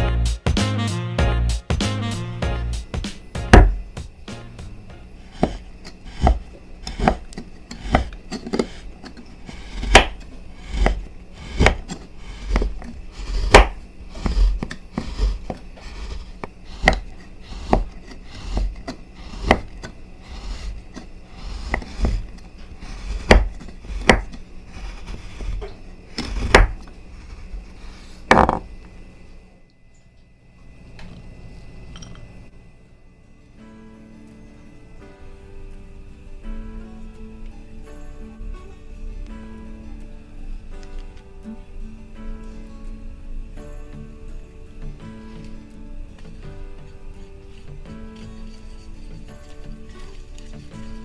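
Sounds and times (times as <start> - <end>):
knife chopping on cutting board: 2.9 - 4.5, 5.3 - 27.4.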